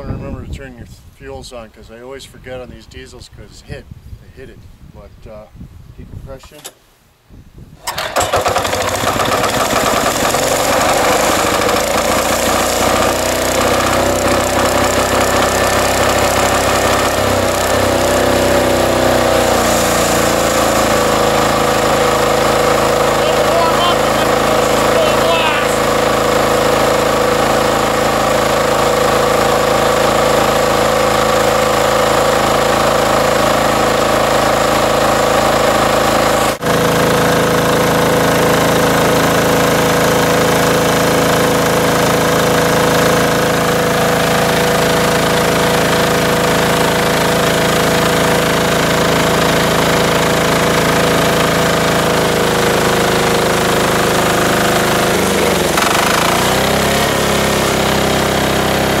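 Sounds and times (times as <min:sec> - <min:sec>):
diesel engine clattering: 0:51.4 - 0:57.6.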